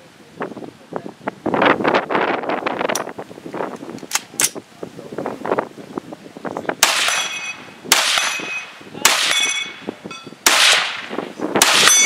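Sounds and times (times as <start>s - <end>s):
metallic ringing of steel target: 6.8s - 12.0s
rifle shots: 6.8s - 12.0s.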